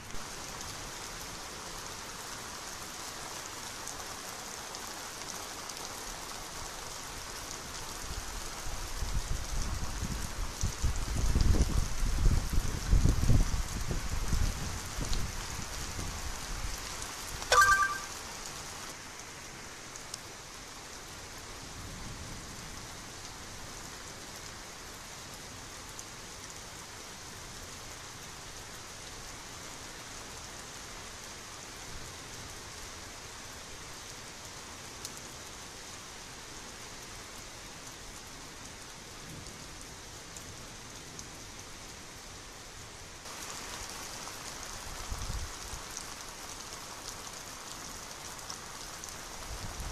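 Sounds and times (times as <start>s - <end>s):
light rain hiss: 0.0s - 49.9s
brief loud tonal sound: 17.5s - 18.1s.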